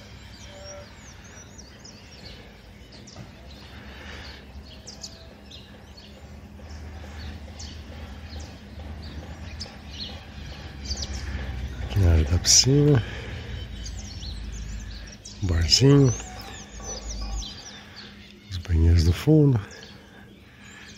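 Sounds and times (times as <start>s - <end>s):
small birds chirping: 0.0s - 20.9s.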